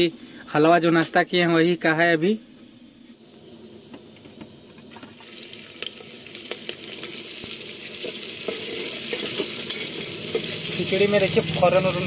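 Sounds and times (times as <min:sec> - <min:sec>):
vegetables sizzling in hot fat: 0:04.8 - 0:12.0
ladle scraping a pot: 0:08.0 - 0:10.6.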